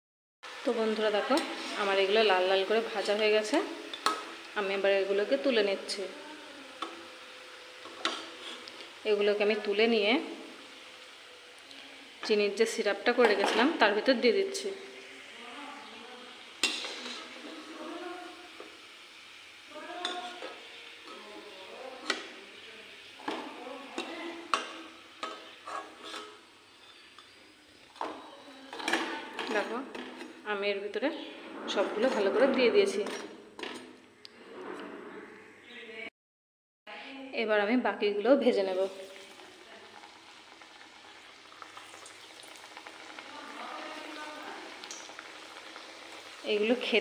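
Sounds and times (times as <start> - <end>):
oil sizzling: 0.4 - 34.2, 38.0 - 47.0
metal skimmer scraping wok: 0.5 - 11.5, 12.1 - 35.3.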